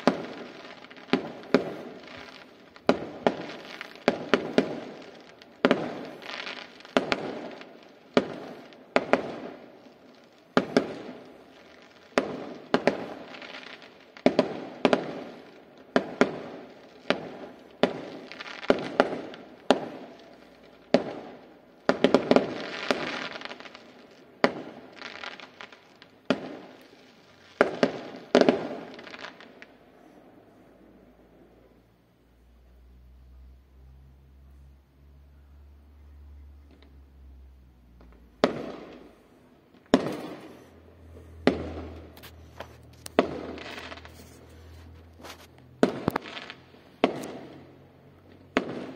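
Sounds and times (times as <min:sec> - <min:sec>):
fireworks bursting with echo: 0:00.0 - 0:33.6, 0:36.2 - 0:48.9.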